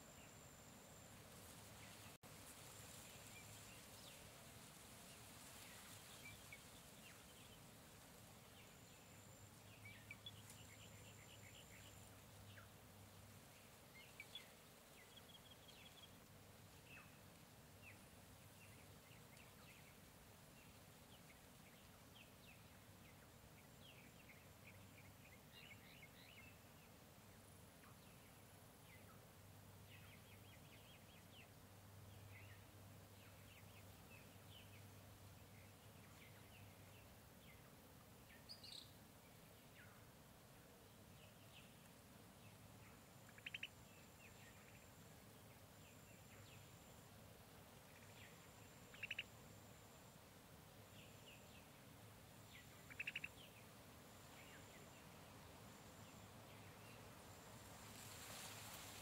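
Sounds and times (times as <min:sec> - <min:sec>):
low steady background hiss: 0:00.0 - 0:59.0
bird chirps and calls: 0:43.3 - 0:43.8, 0:48.0 - 0:49.3, 0:52.6 - 0:53.6.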